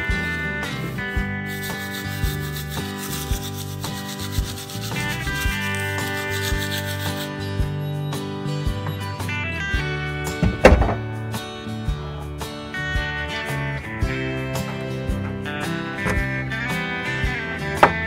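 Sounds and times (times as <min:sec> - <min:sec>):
background music: 0:00.0 - 0:18.0
toothbrush scrubbing teeth: 0:01.5 - 0:07.4.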